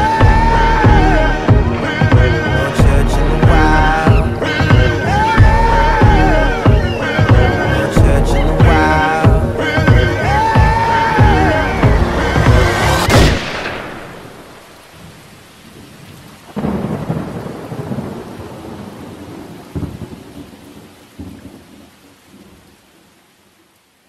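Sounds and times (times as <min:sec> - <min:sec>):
music: 0:00.0 - 0:13.4
steady rain: 0:00.0 - 0:24.0
thunder: 0:10.6 - 0:14.6, 0:16.5 - 0:21.6.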